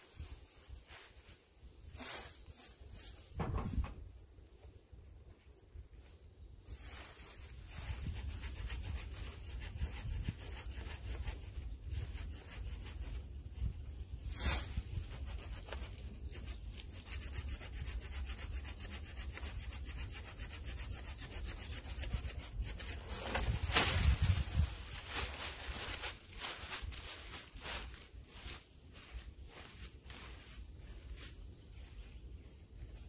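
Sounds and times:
hand saw rasping through wood: 0:17.1 - 0:23.1.

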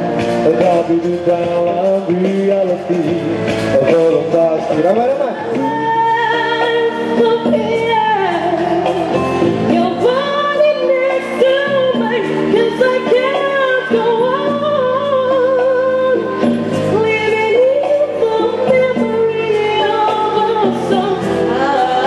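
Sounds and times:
backing track: 0:00.0 - 0:22.0
woman singing pop song: 0:05.4 - 0:22.0.

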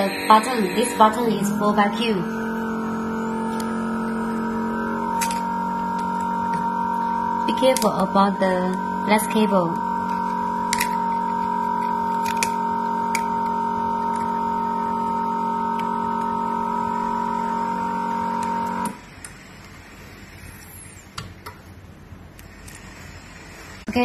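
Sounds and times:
vacuum pump humming: 0:00.0 - 0:20.4.

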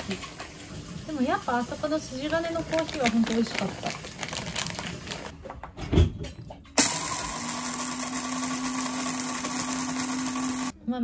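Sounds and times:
coffee beans rustling: 0:02.2 - 0:05.3
electric coffee grinder: 0:06.8 - 0:10.8.

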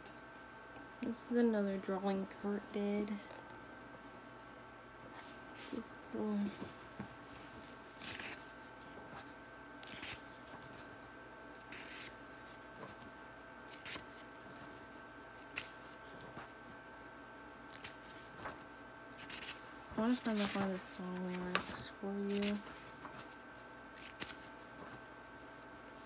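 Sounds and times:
faint steady hum: 0:00.0 - 0:26.0
book pages turning: 0:07.4 - 0:10.9, 0:11.7 - 0:13.1, 0:13.7 - 0:14.8, 0:15.5 - 0:16.5, 0:17.7 - 0:25.0.

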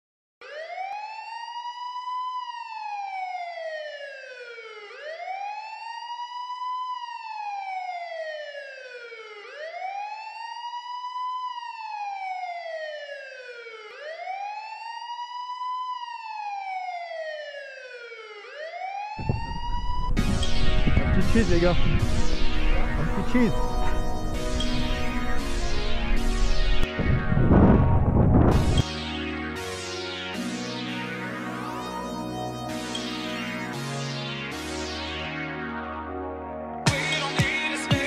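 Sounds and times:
wailing siren: 0:00.4 - 0:38.0
loud music: 0:20.2 - 0:38.0.

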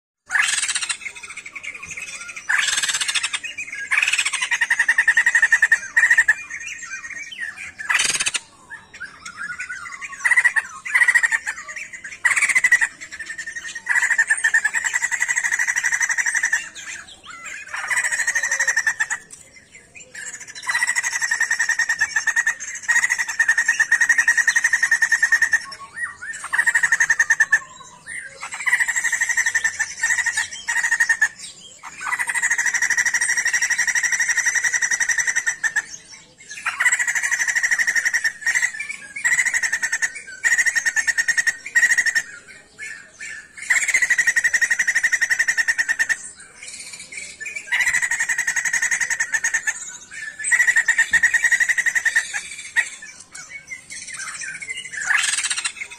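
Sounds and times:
bird trilled calls: 0:00.3 - 0:55.9.

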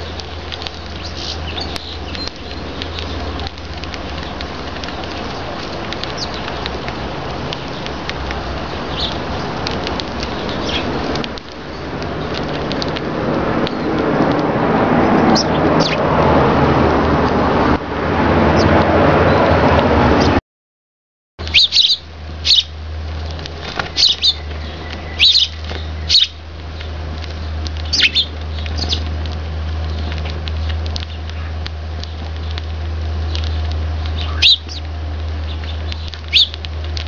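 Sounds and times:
sparrows chirping: 0:00.0 - 0:14.4, 0:15.0 - 0:16.1, 0:18.5 - 0:20.4, 0:21.4 - 0:37.0
steady rushing noise: 0:00.0 - 0:20.4
steady low hum: 0:21.4 - 0:37.0.

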